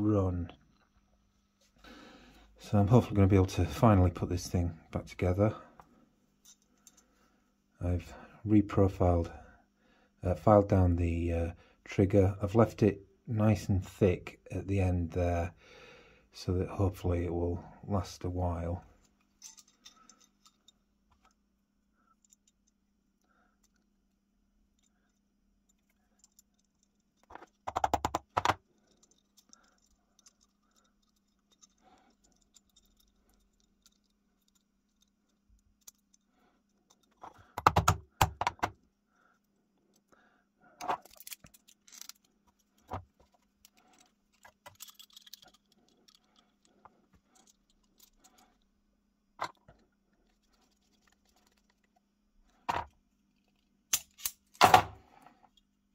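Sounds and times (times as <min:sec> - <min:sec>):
metal lock parts clicking: 0:19.0 - 0:21.4, 0:22.1 - 0:23.9, 0:24.7 - 0:38.9, 0:40.8 - 0:48.7, 0:49.4 - 0:55.7.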